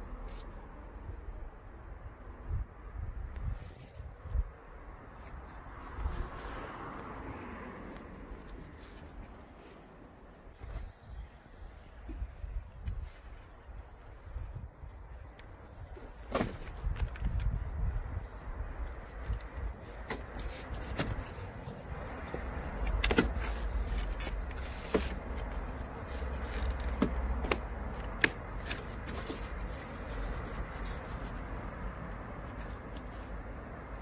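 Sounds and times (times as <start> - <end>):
plastic scraping: 19.0 - 31.7.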